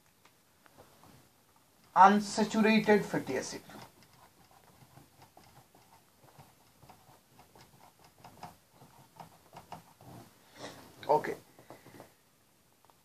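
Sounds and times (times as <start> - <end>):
marker writing on whiteboard: 3.2 - 10.4.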